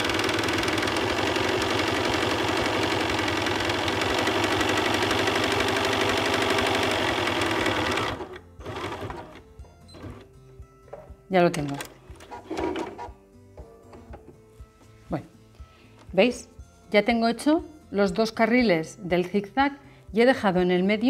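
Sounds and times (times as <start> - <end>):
sewing machine stitching: 0.0 - 9.4, 11.6 - 13.1.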